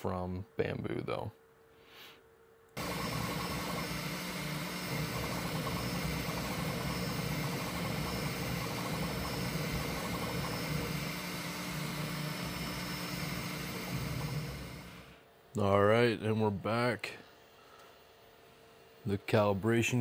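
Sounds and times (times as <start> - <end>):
printer whirring and humming: 2.8 - 15.3.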